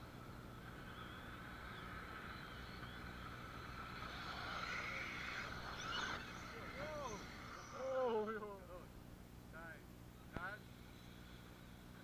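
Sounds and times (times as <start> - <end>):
rc car motors whining: 0.0 - 8.8.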